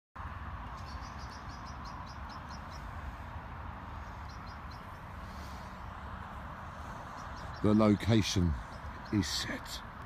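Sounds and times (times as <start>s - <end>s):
small bird chirping: 0.7s - 3.0s, 4.0s - 6.0s, 7.0s - 9.6s.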